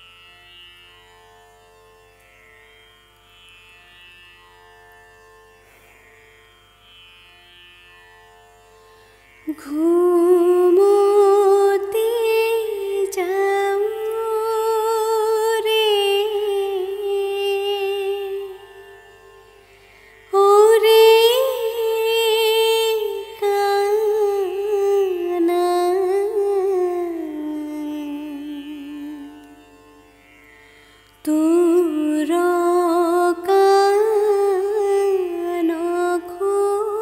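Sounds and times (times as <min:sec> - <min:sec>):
woman singing a lullaby: 0:09.5 - 0:18.6, 0:20.4 - 0:29.3, 0:31.3 - 0:37.0.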